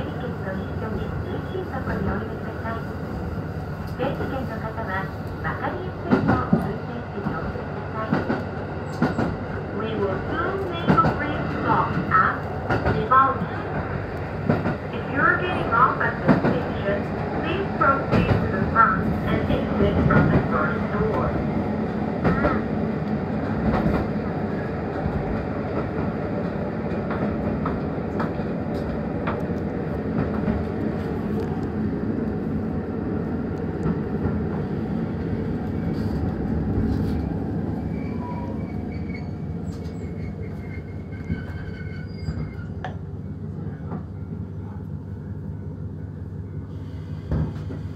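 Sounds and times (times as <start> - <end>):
diesel railcar running: 0.0 - 47.9
faint brake squeals: 37.8 - 42.8.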